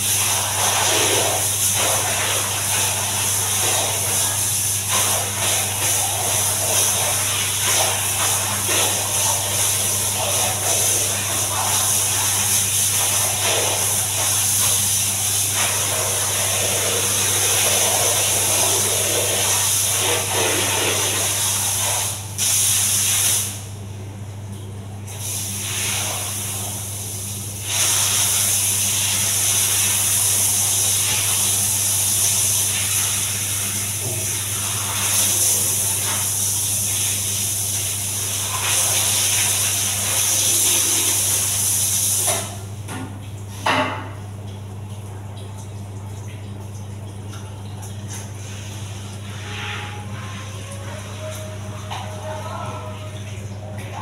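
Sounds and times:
water sprayer hissing: 0.0 - 23.7, 25.1 - 42.6.

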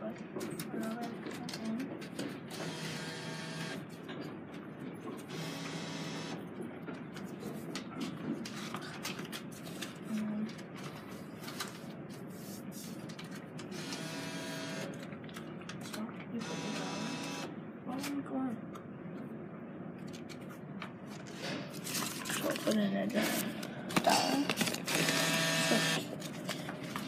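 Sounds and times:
vending machine motor whirring: 2.5 - 3.8, 5.3 - 6.4, 13.7 - 14.9, 16.4 - 17.5, 24.8 - 26.1.

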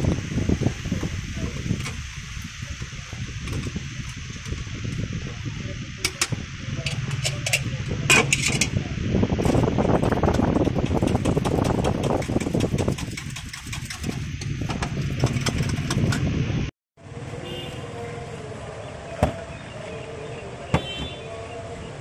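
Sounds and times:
wire frying basket shaken: 9.4 - 16.2.

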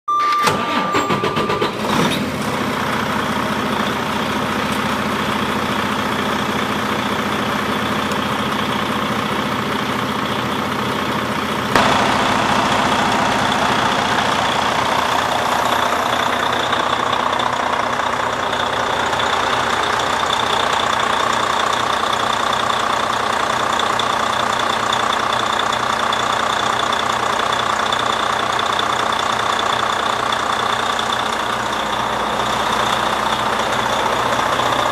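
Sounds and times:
diesel engine idling: 1.7 - 34.9
thin high whine: 11.7 - 16.8.

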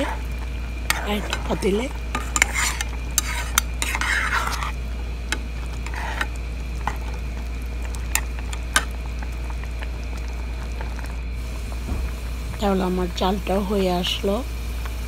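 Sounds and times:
steady low hum: 0.0 - 15.0
spatula scraping pot: 0.8 - 7.2.

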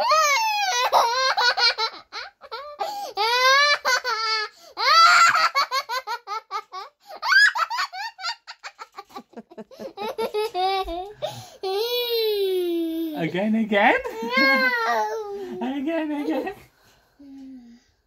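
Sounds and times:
baby laughing: 0.7 - 11.9, 14.0 - 16.4.

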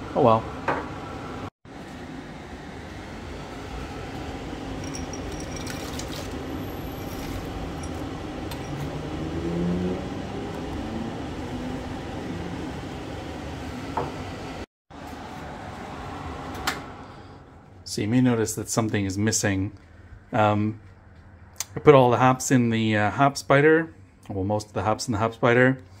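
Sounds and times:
light glass clinks: 4.8 - 6.0.

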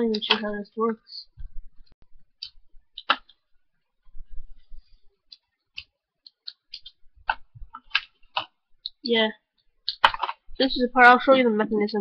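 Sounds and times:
plastic puzzle cube clicking: 2.4 - 3.4, 9.8 - 10.4.

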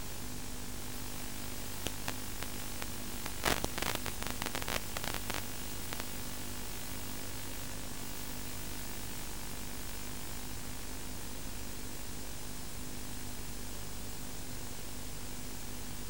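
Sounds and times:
static hiss: 0.0 - 9.0
sharp crackles: 1.1 - 6.3.

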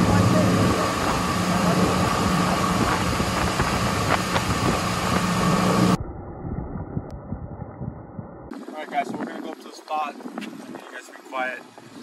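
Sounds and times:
outboard motor humming: 0.0 - 6.0
water splashing along hull: 0.0 - 6.0
wind rushing: 0.0 - 12.0.

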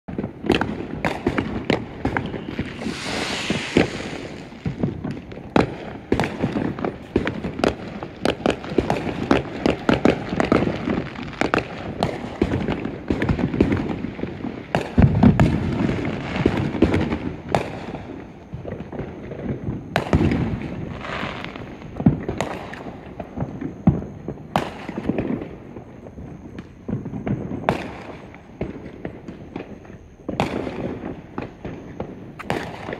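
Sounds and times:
deep fireworks booming: 0.1 - 32.9
fireworks cracking and banging: 0.1 - 32.9
firework hiss: 1.7 - 5.6.

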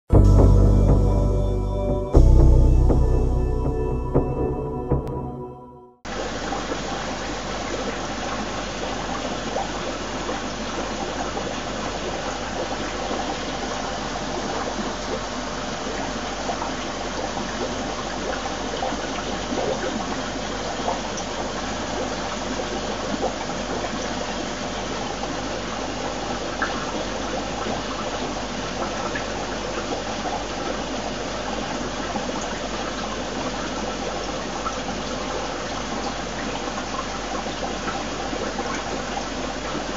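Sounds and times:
low steady hum: 0.1 - 6.6
aquarium water rushing: 6.1 - 39.9.

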